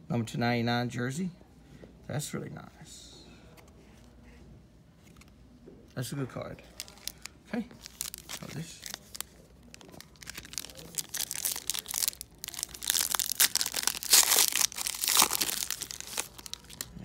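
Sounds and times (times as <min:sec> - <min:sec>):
foil wrapper tearing and crinkling: 0:06.8 - 0:17.0.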